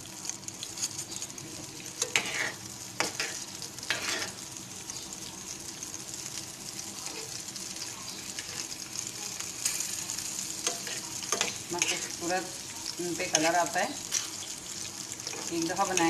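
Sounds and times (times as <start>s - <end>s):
chillies sizzling in oil: 0.0s - 16.0s
spoon scraping and knocking pan: 2.0s - 4.4s, 10.6s - 12.2s.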